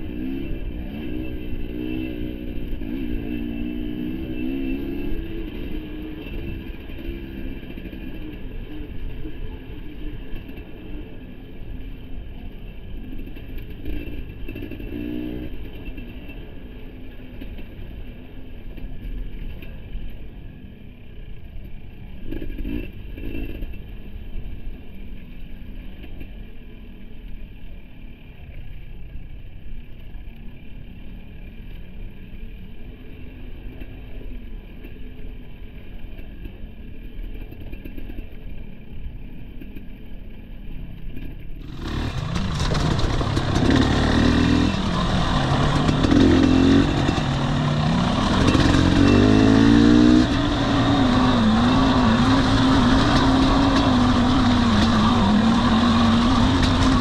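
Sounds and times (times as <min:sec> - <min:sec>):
dirt bike engine revving: 0:41.6 - 0:57.0.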